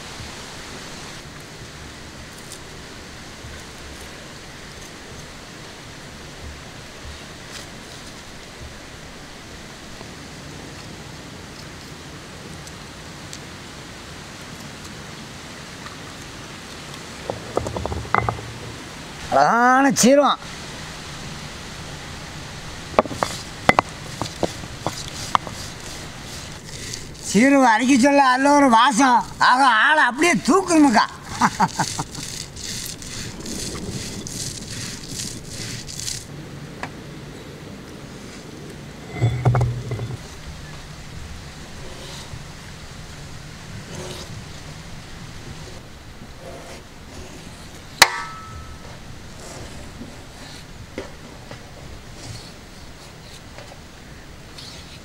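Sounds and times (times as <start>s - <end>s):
light stone knocks: 17.3s - 18.6s, 23.0s - 26.0s
spices ground on stone: 22.9s - 28.2s, 30.5s - 36.3s, 43.8s - 44.4s.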